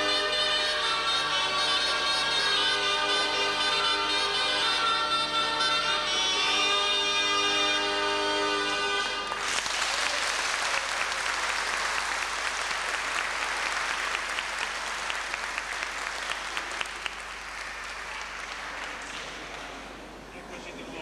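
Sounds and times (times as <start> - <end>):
bagpipe and reed pipe: 0.0 - 9.4
audience applause: 9.2 - 20.0.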